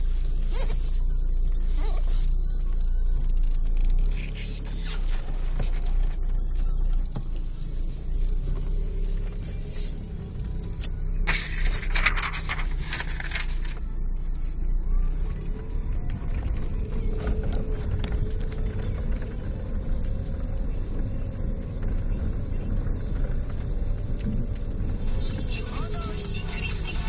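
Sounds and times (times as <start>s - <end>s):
car engine and tyre rumble: 0.0s - 27.0s
rattles and clicks: 15.4s - 25.6s.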